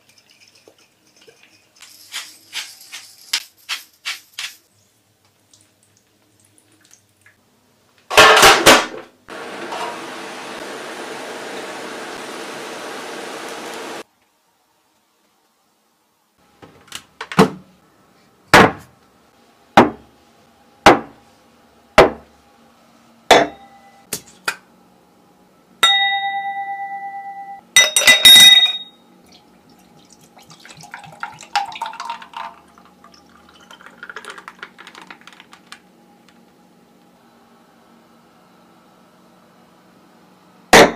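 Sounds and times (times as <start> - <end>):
glass ringing: 23.3 - 24.0, 25.8 - 29.0
object clinking into glass: 25.8 - 29.0
drink pouring with fizz: 29.3 - 35.4.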